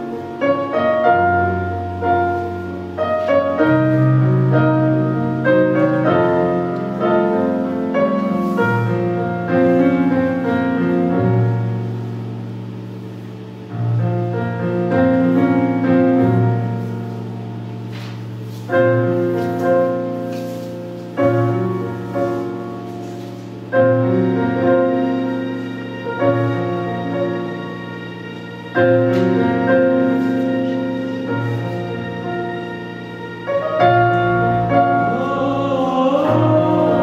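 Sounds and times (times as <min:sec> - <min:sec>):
slow piano music: 0:00.0 - 0:37.0.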